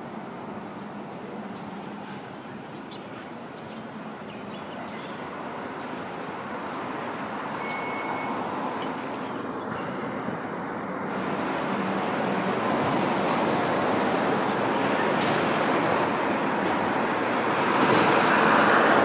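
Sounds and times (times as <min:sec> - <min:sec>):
train wheels rumbling on rails: 0:09.8 - 0:19.0.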